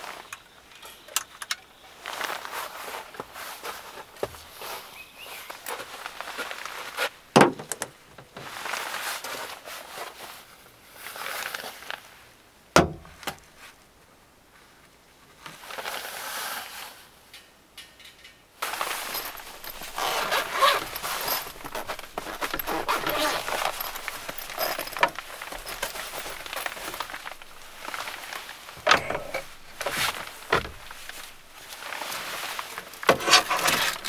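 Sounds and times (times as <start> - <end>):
fabric rustling: 18.6 - 34.0.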